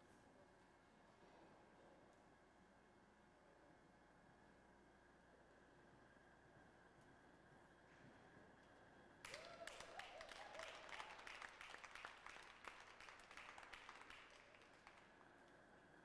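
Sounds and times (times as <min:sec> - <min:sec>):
crowd clapping: 0:09.2 - 0:15.6.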